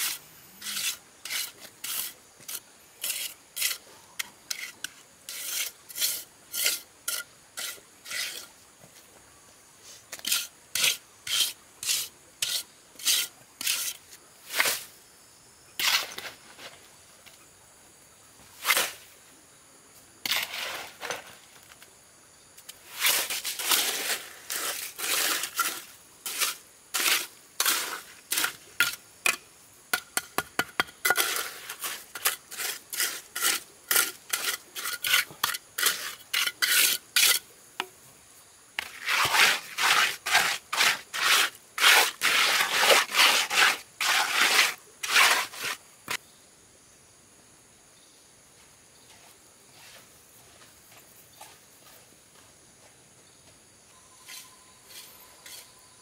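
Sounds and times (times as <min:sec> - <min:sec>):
trowel scraping wet mortar: 0:00.0 - 0:08.5, 0:10.1 - 0:14.9, 0:15.8 - 0:16.3, 0:20.3 - 0:21.3, 0:22.8 - 0:29.4, 0:30.2 - 0:37.4, 0:38.8 - 0:46.2, 0:54.3 - 0:55.8.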